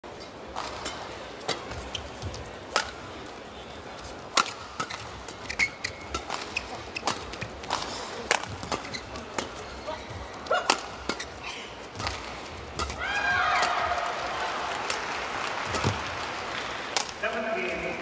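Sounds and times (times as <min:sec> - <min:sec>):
rackets hitting shuttlecock: 0:00.5 - 0:02.1, 0:02.7 - 0:03.1, 0:04.2 - 0:09.7, 0:10.5 - 0:11.4, 0:12.0 - 0:14.2, 0:14.8 - 0:16.0, 0:16.9 - 0:17.2.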